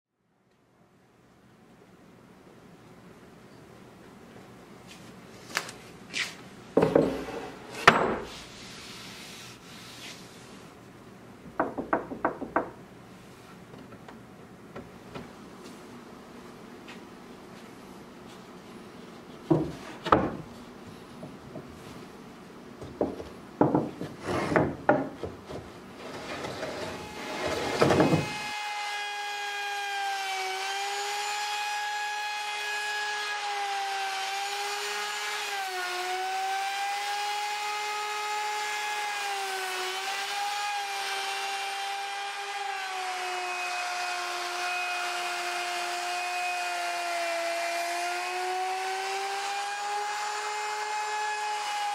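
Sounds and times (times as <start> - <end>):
wooden knocks and thumps: 6.8 - 8.3, 11.4 - 12.8, 19.4 - 20.5, 21.2 - 21.8, 22.8 - 25.7, 27.4 - 28.4.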